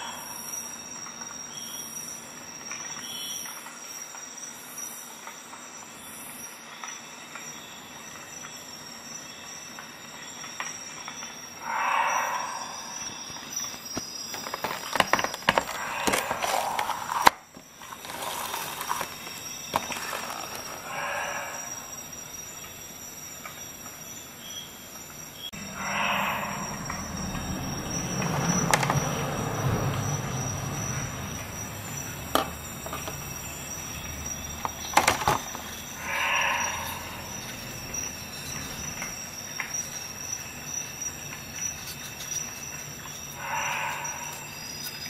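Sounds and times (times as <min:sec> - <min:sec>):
steady high whine: 0:11.4 - 0:23.0, 0:25.0 - 0:39.5
plastic packaging crinkling: 0:14.3 - 0:20.8.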